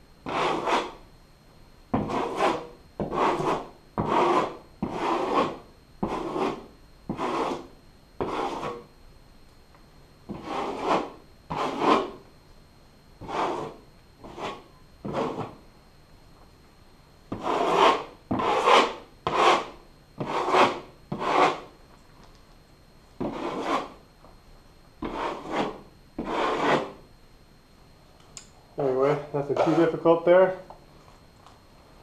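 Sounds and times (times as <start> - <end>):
metal knife scraping drywall: 0.2 - 1.0, 2.0 - 8.9, 10.3 - 12.2, 13.2 - 15.6, 17.3 - 21.7, 23.2 - 24.0, 25.0 - 27.0, 29.4 - 30.0.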